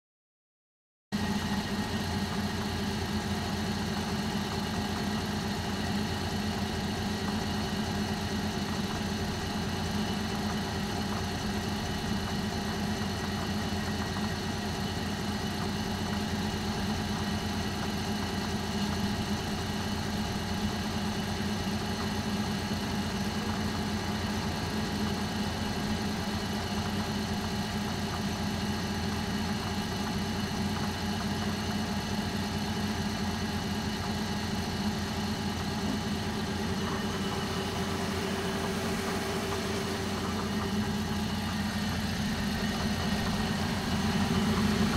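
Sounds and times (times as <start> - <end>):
bus engine idling: 1.2 - 44.9.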